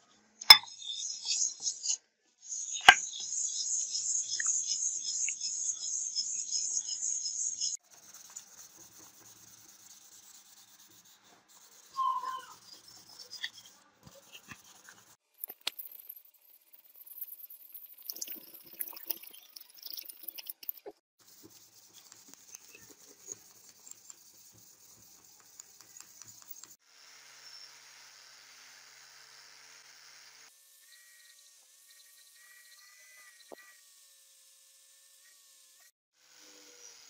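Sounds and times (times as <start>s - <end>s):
sandpaper rasping on metal: 7.8s - 15.2s, 21.2s - 26.8s
brief squeak: 11.9s - 12.6s.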